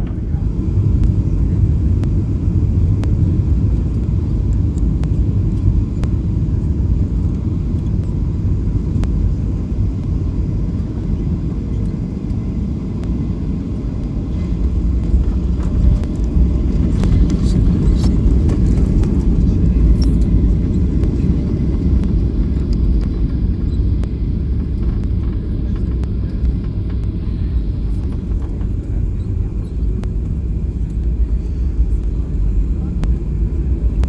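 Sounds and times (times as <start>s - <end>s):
airplane cabin rumble: 0.0s - 34.0s.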